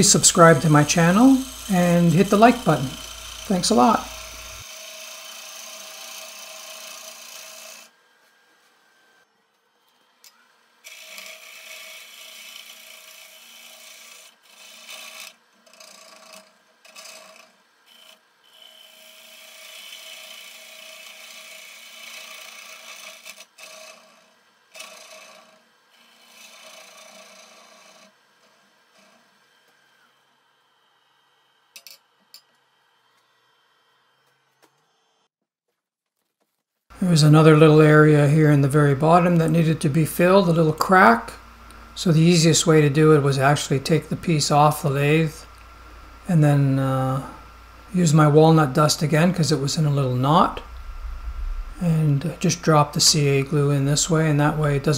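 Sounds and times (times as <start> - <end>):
gouge cutting wood on lathe: 0.0 - 8.0, 10.8 - 30.1
lathe motor hum: 0.0 - 9.2, 10.0 - 31.7, 39.0 - 54.9.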